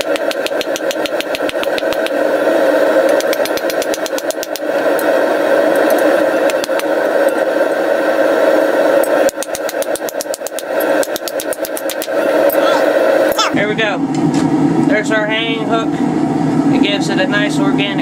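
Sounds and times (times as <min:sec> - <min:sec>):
rapid even clicking: 0:00.0 - 0:02.2, 0:03.1 - 0:04.6, 0:09.3 - 0:12.1.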